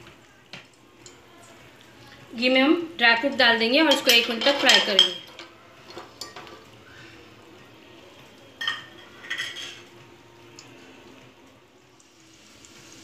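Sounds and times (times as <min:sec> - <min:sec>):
faint sizzle of frying: 0:00.0 - 0:13.0
metal spoon stirring nuts in pot: 0:03.2 - 0:06.6
metal clinks of spoon on pot: 0:03.9 - 0:05.5.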